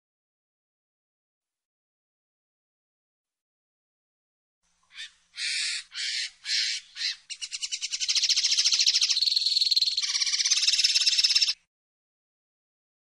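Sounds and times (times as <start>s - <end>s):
bird singing twittering trill: 4.9s - 11.7s.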